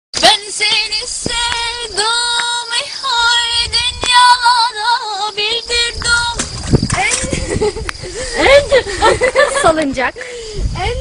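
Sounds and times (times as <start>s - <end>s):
woman singing: 0.2s - 7.3s.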